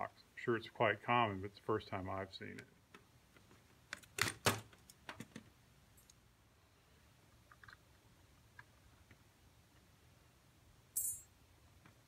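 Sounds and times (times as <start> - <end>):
faint metal clinks: 10.9 - 11.4.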